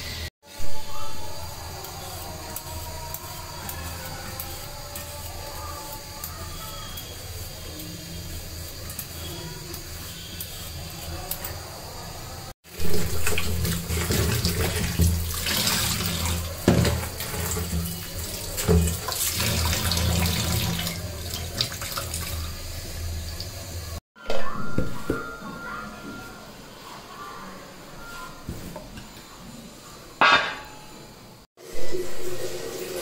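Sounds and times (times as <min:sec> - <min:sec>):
vegetables rubbed in steel bowl: 0:00.8 - 0:22.2
tap water running into sink: 0:12.9 - 0:23.8.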